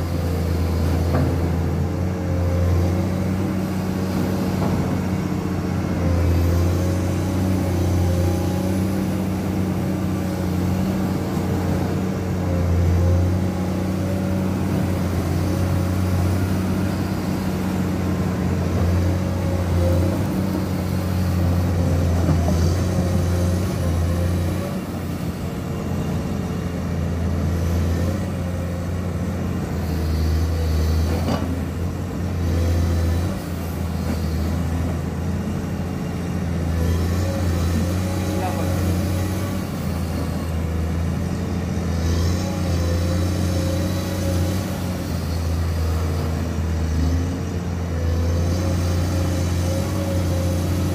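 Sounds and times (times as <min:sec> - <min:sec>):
excavator diesel engine running: 0:00.0 - 0:50.9.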